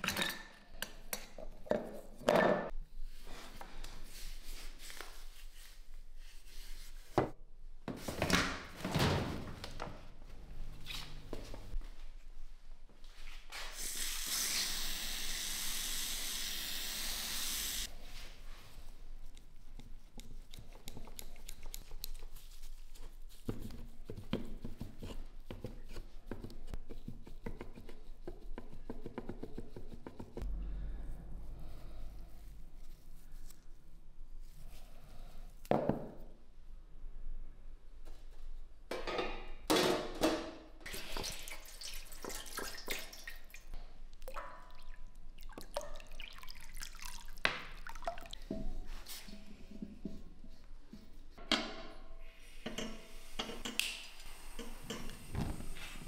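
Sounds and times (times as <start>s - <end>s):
water dripping and sloshing: 40.8s - 49.5s
water pouring into metal pan: 40.9s - 43.6s, 44.2s - 48.5s.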